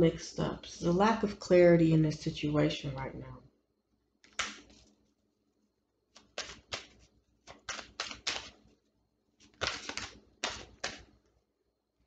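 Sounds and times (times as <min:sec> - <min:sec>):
cards being shuffled: 0:04.2 - 0:05.1, 0:06.1 - 0:08.8, 0:09.4 - 0:11.2.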